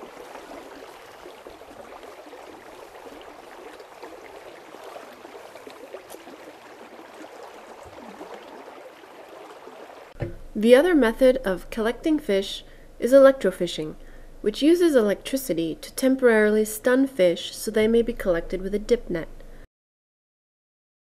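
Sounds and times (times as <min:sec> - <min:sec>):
river water rushing and splashing: 0:00.0 - 0:10.2.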